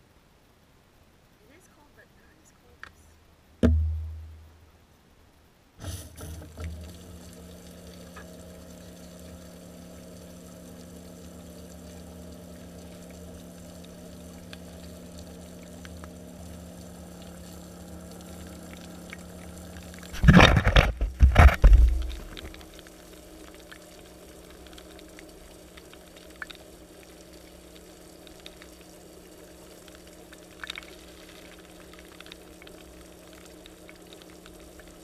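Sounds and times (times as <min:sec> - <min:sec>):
steady hum: 0:00.0 - 0:35.0
loud irregular bumps: 0:03.6 - 0:04.4
low thump: 0:03.6 - 0:04.4
shower water running: 0:05.8 - 0:20.3, 0:21.5 - 0:35.0.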